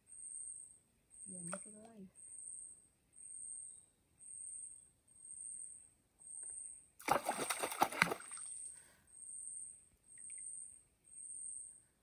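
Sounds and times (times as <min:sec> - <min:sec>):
insect chirping: 0:00.0 - 0:12.0
water splashing: 0:07.0 - 0:08.4.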